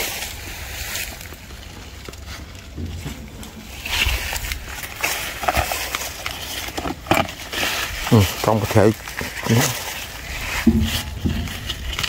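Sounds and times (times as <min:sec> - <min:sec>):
leaves and vines rustling: 0:00.0 - 0:12.0
low rumble: 0:09.9 - 0:12.0.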